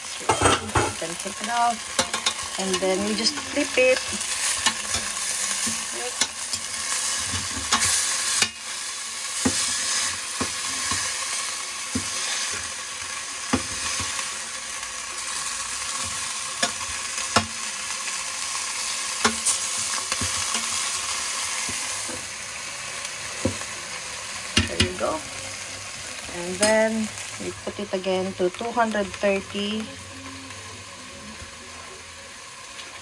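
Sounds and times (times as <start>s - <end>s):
chicken sizzling in a pan: 0.0s - 33.0s
metal spoon scraping a pan: 0.1s - 8.8s, 9.4s - 11.3s, 18.8s - 21.0s.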